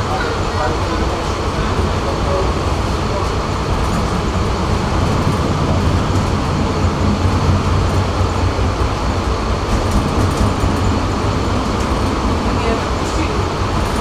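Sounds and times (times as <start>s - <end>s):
tram wheels and motors rumbling: 0.0s - 14.0s.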